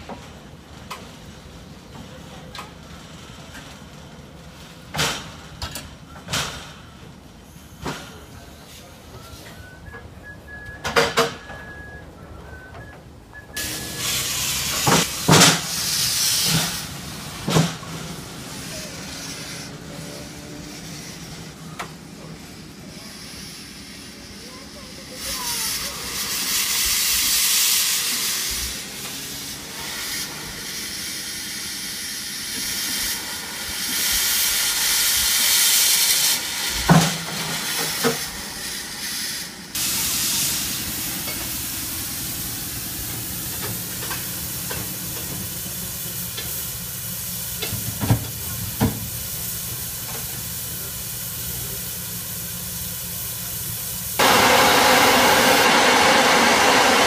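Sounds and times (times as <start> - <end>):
steam locomotive hissing: 0.0 - 57.0
loud blast of steam: 13.4 - 57.0.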